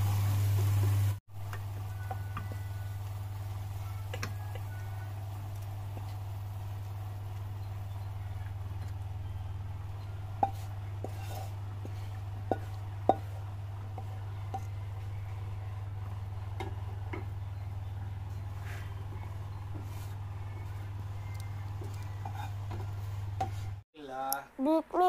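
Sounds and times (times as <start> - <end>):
steady low hum: 0.0 - 23.8
wooden spatula scraping a wok: 10.3 - 15.1, 18.3 - 21.2, 21.9 - 23.8.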